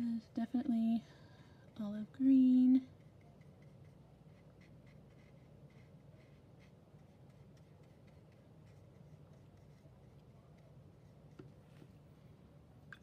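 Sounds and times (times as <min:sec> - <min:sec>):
brush scratching on paper: 0:02.9 - 0:11.6.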